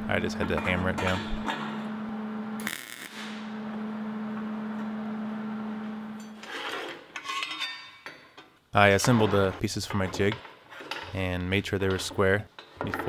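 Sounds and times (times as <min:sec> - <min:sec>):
arc welding buzzing hum: 0:01.2 - 0:06.7
steel pieces clinking: 0:06.2 - 0:08.4.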